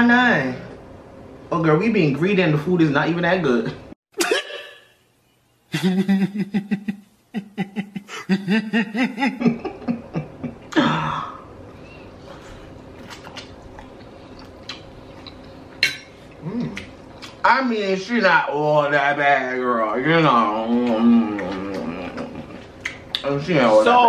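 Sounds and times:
low steady hum: 0:00.0 - 0:24.0
faint chewing: 0:12.3 - 0:17.4.

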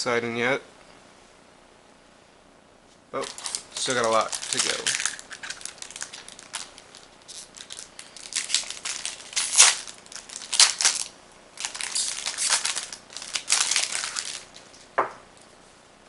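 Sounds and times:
foil wrapper crinkling and tearing: 0:03.2 - 0:14.9.

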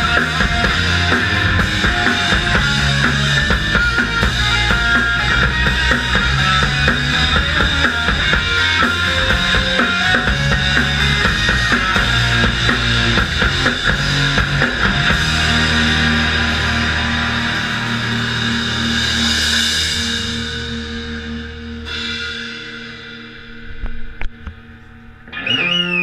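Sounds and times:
bass drum and snare: 0:00.0 - 0:20.5
rock band playing live: 0:00.0 - 0:26.0.

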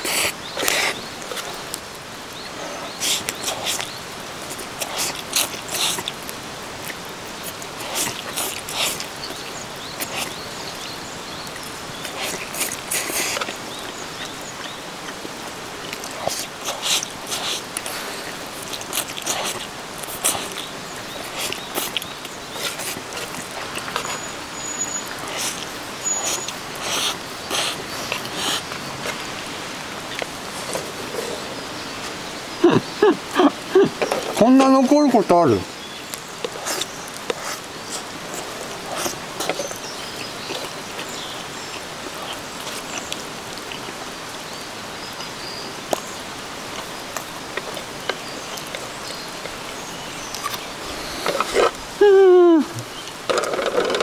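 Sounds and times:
person slurping spaghetti: 0:00.0 - 0:01.6, 0:02.7 - 0:03.9, 0:04.5 - 0:06.3, 0:06.9 - 0:09.1, 0:12.0 - 0:13.6, 0:15.9 - 0:24.4, 0:25.0 - 0:29.5, 0:36.4 - 0:39.8, 0:50.4 - 0:51.8
rain hissing: 0:00.0 - 0:54.0.

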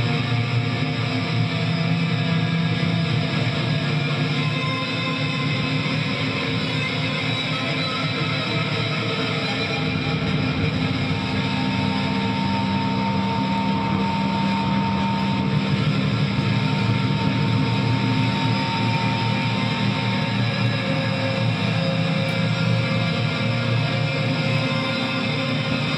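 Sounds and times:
electric guitar drone: 0:00.0 - 0:25.9.

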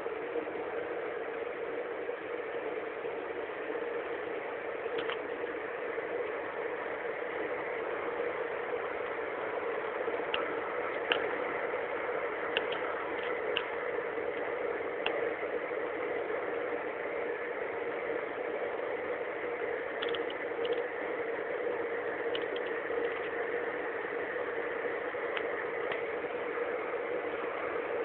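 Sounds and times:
car road and engine noise: 0:00.0 - 0:28.0
faint ticks and rattles: 0:19.9 - 0:21.1, 0:22.0 - 0:28.0.

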